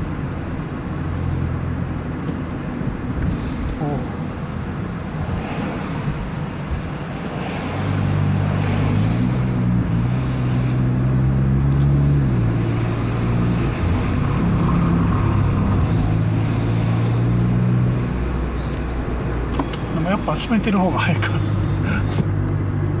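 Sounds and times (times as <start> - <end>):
car engine hum: 0.0 - 23.0
wind and road noise: 0.0 - 23.0.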